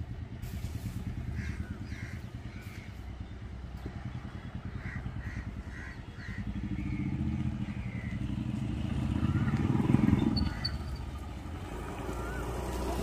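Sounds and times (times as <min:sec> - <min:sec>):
motorcycle engine pulsing: 0:01.0 - 0:11.6
crows cawing: 0:01.3 - 0:03.0, 0:04.7 - 0:06.7.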